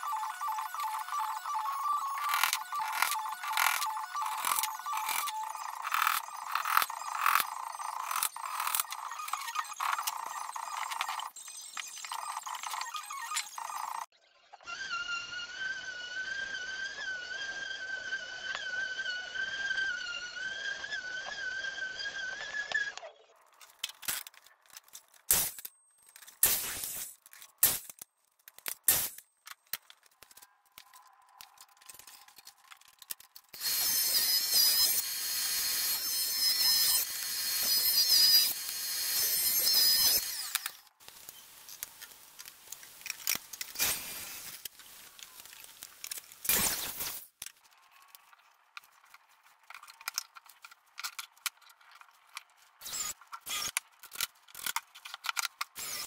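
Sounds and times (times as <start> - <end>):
power tool motor whine: 0.0 - 11.1, 14.6 - 23.1, 33.6 - 41.0, 55.8 - 56.0
power tool cutting wood: 0.0 - 11.3, 12.1 - 23.0, 33.6 - 41.0, 52.8 - 53.8, 55.7 - 56.0.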